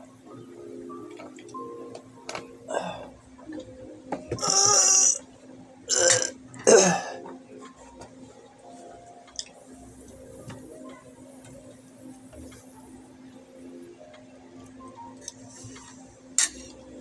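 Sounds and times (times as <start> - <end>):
faint steady hum: 0.0 - 17.0
man burping loudly: 4.3 - 5.2, 5.9 - 7.2.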